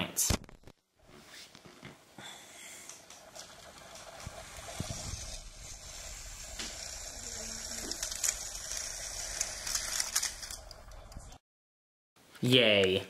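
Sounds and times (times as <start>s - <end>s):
model train rattling hiss: 2.7s - 10.9s.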